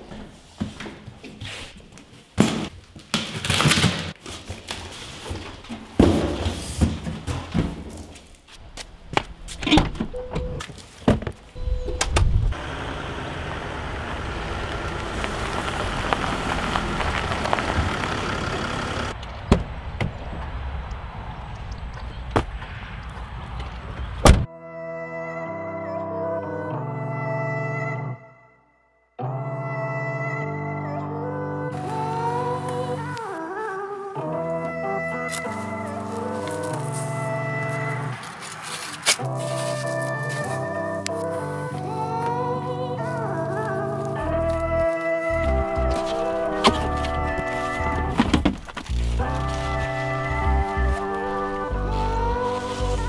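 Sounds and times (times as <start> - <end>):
knocks and thunks: 5.7 - 8.2, 24.2 - 24.5, 48.1 - 49.0
van rumbling on gravel: 10.8 - 20.5, 43.4 - 53.0
car pulling away: 11.6 - 19.2, 44.2 - 53.0
music: 24.5 - 38.3, 39.2 - 53.0.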